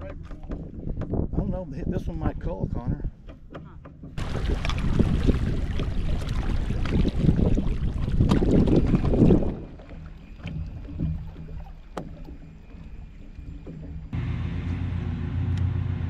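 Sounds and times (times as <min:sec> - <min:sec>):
boat engine low hum: 0:03.2 - 0:16.0.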